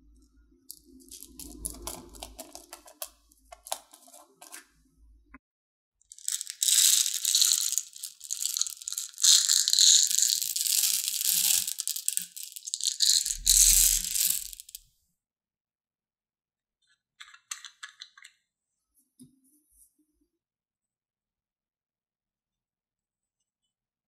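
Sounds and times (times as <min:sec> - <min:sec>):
plastic beads pouring and rattling: 0:01.0 - 0:04.6, 0:06.1 - 0:14.8.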